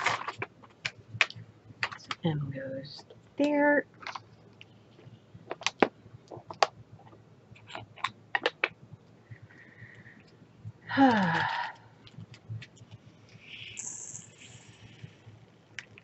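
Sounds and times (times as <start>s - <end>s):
plastic bottles clicking: 7.7s - 8.7s.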